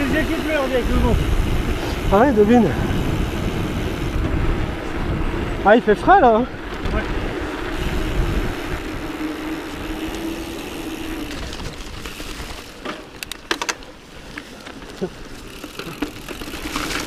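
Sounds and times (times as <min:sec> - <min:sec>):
wind rushing over camera: 0:00.0 - 0:13.4
tyres humming on tarmac: 0:00.0 - 0:17.0.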